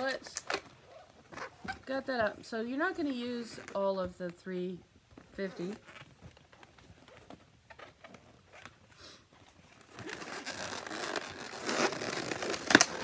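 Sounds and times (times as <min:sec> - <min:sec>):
balloons rubbing and squeaking: 0:00.0 - 0:03.9, 0:05.2 - 0:13.0.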